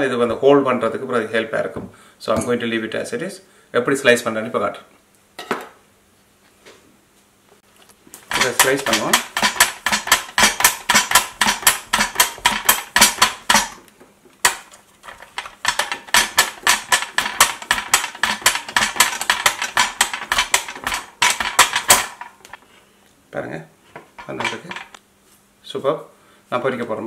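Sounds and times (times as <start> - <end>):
mandoline slicer cutting root: 8.3 - 13.8, 14.4 - 22.5.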